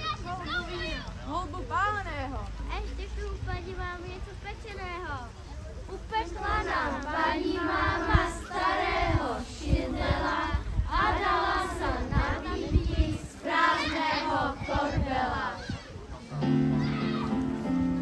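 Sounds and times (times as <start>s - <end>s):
children's choir singing: 6.2s - 15.8s.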